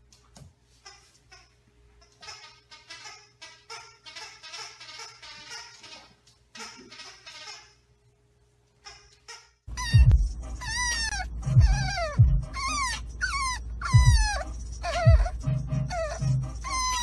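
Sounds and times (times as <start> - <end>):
puppy whining: 8.9 - 17.0
low steady rumble: 9.7 - 17.0.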